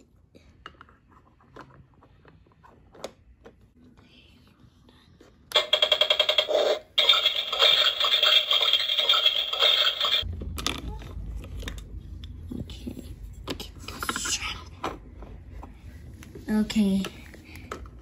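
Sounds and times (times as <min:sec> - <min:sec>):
toy electronic cooking sound: 0:05.5 - 0:10.3.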